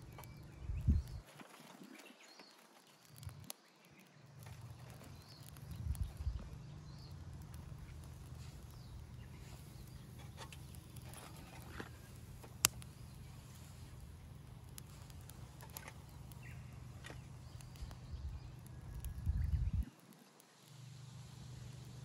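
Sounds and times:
fire popping: 0.0s - 22.0s
twig fire crackling: 0.0s - 22.0s
low rumble: 5.0s - 10.2s, 16.2s - 19.9s.

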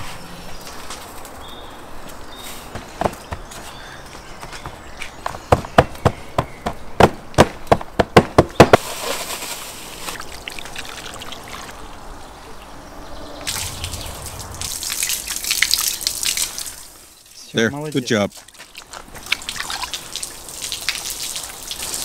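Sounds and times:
trickling hiss: 13.4s - 18.2s.

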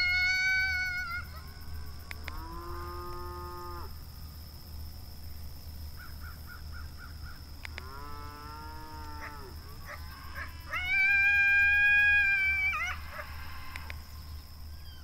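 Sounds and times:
drawn-out howls: 0.0s - 4.0s, 7.7s - 15.0s.

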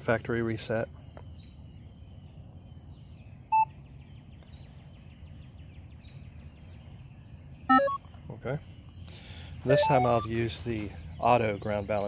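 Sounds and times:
high bird chirps: 5.4s - 12.0s
short electronic beep: 7.7s - 8.0s, 9.7s - 10.3s.

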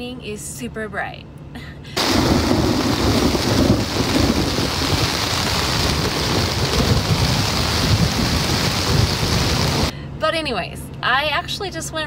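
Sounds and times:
heavy rain pouring: 2.0s - 9.9s
thunder rumbling: 2.0s - 9.9s.

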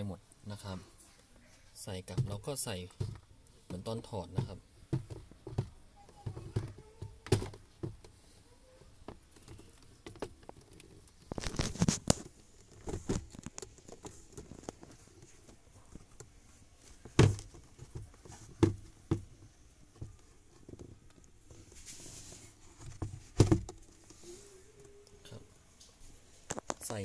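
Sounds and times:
plastic knocks and clicks: 2.1s - 8.2s, 17.0s - 21.3s, 22.8s - 24.0s
paper rustling: 10.5s - 16.0s.

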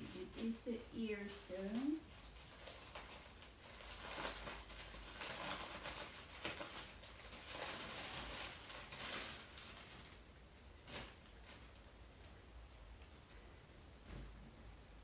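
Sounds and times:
plastic bag crinkling: 0.0s - 11.8s.

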